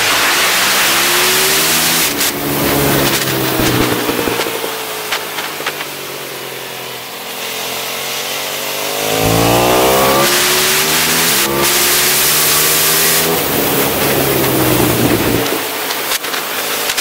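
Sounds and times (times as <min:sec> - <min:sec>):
motorcycle engine revving: 0:00.2 - 0:16.3
exhaust pops: 0:01.6 - 0:06.1, 0:08.8 - 0:17.0.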